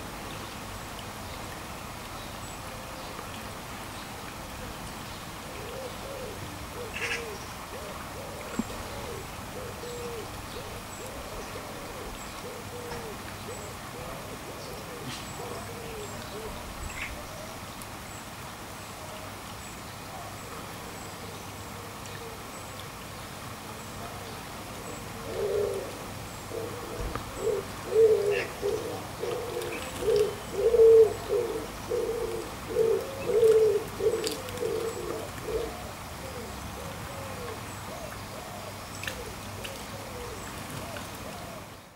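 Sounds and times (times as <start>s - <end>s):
fountain trickling: 0.0s - 9.6s
soft cooing: 5.6s - 17.2s, 25.2s - 41.7s.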